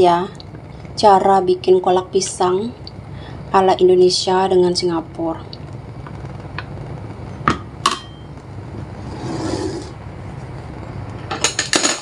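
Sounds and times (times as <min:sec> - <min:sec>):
steady low hum: 0:00.0 - 0:12.0
soft scrape: 0:08.7 - 0:10.0.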